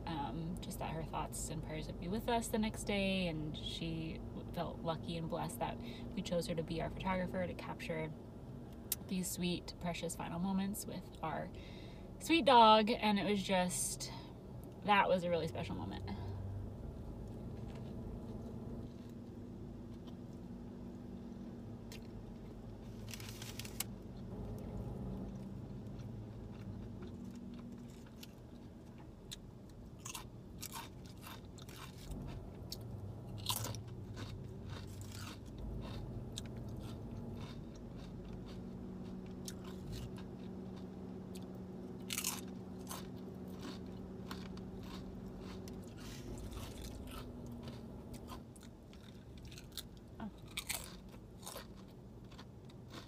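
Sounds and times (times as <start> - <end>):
low steady hum: 0.0 - 53.0
chewing with sharp crunches: 17.2 - 20.5, 21.2 - 53.0.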